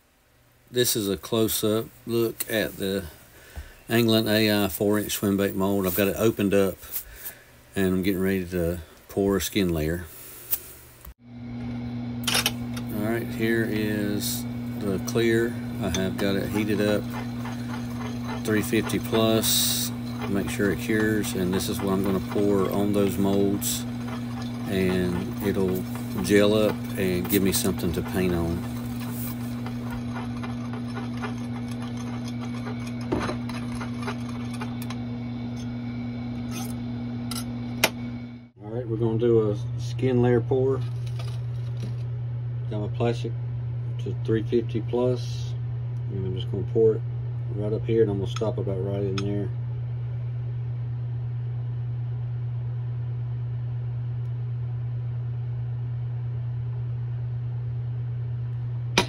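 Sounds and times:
low hum: 11.3s - 42.7s.

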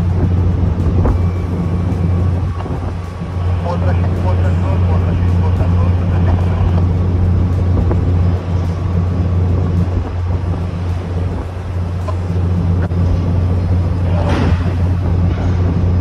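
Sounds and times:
low machinery hum: 0.0s - 16.0s.

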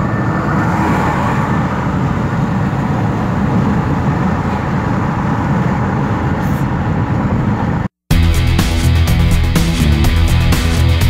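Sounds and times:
car road noise from inside: 0.0s - 7.9s.

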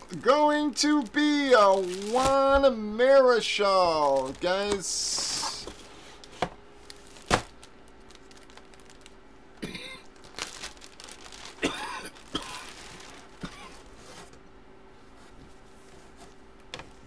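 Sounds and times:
plastic bag crinkling: 0.0s - 14.2s.

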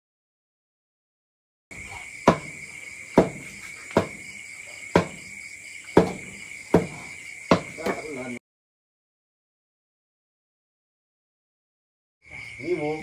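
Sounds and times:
crickets chirring: 1.7s - 8.4s, 12.2s - 13.0s
knives chopping on wooden boards: 2.2s - 4.3s, 4.9s - 8.2s.

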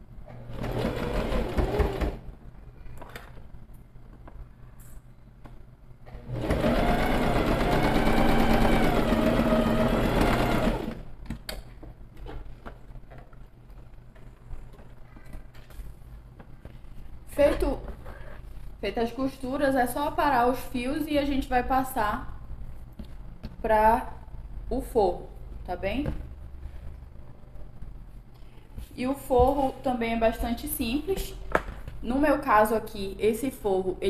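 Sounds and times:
sewing machine stitching: 0.3s - 2.2s, 6.2s - 11.0s.

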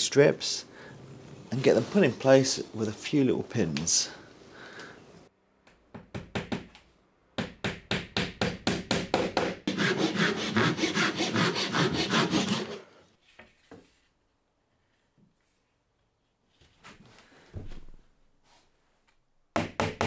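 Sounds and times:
rasping on wood: 9.4s - 12.8s.

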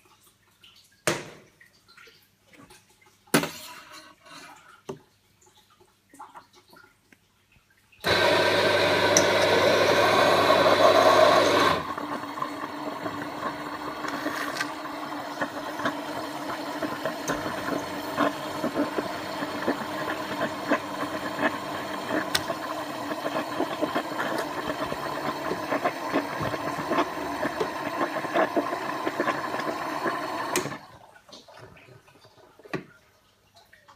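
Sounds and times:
coffee bean grinder: 8.0s - 30.8s
coffee and milk foam crackling: 8.0s - 30.9s
coffee machine pump running: 8.0s - 30.9s.

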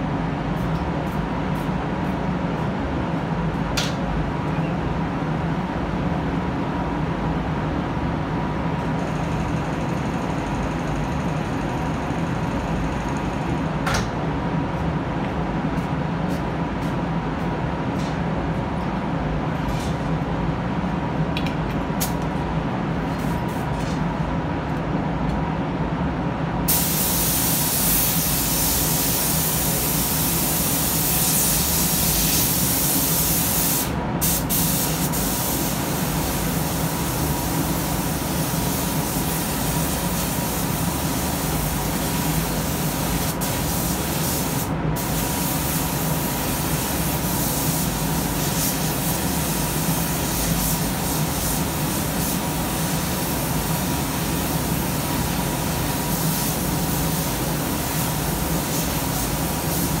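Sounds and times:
paint spray gun hissing: 26.7s - 60.0s.

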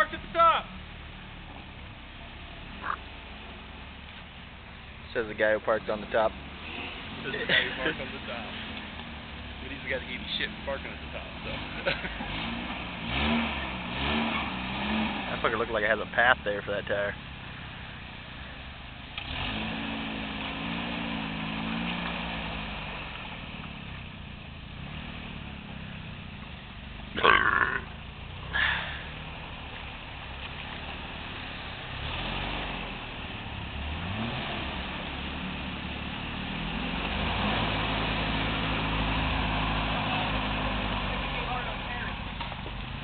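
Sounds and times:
truck engine revving: 5.1s - 17.6s, 19.1s - 26.0s, 27.1s - 43.0s.

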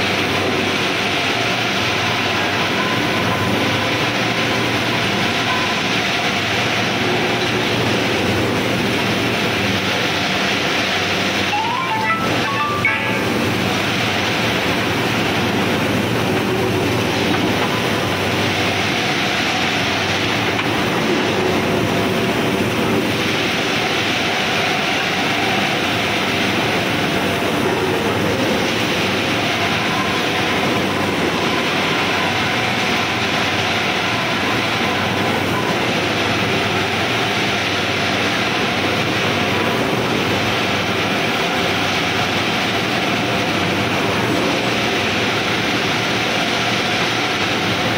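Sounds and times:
rolling mill industrial din: 6.8s - 35.3s.

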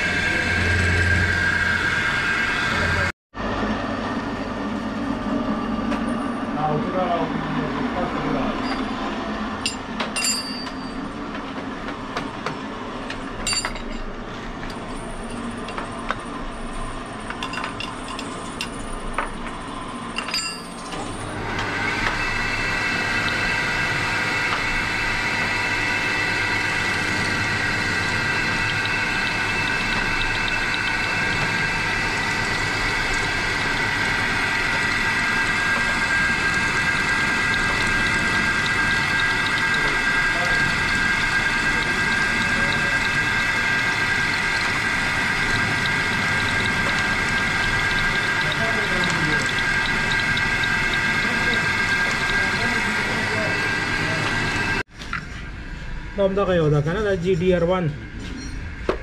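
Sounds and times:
milling machine cutting metal: 0.0s - 3.1s, 14.6s - 54.9s
workshop machinery humming: 0.0s - 59.0s
sharp metal clinks: 9.6s - 11.0s.

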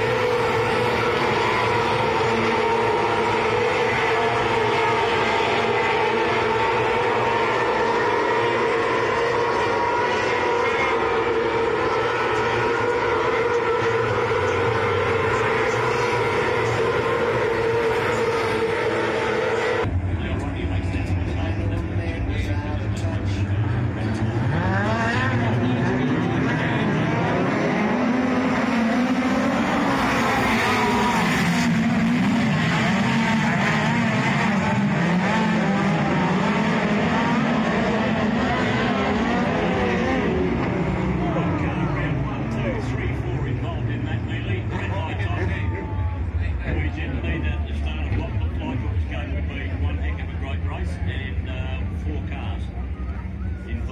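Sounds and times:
racing car engines roaring: 0.0s - 53.9s.

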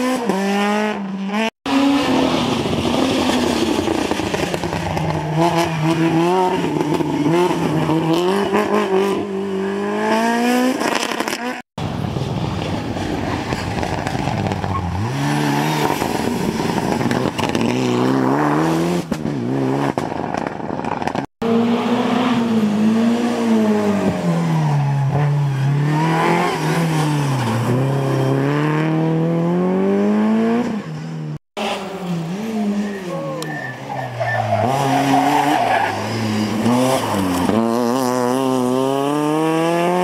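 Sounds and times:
rally car engines revving: 0.0s - 11.6s, 12.8s - 40.0s.

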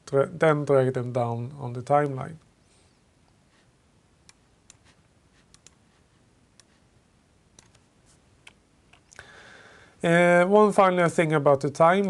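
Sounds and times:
computer mouse clicks: 5.5s - 5.8s, 7.5s - 9.2s.

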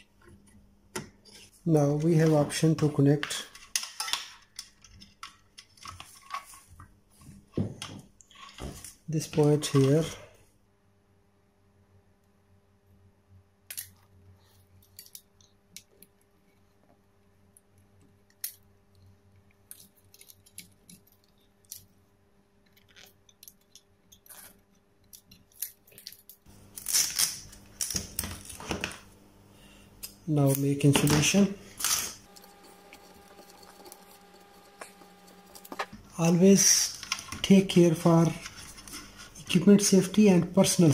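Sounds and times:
wire leads clicking and rustling: 17.6s - 22.0s, 30.0s - 40.0s.

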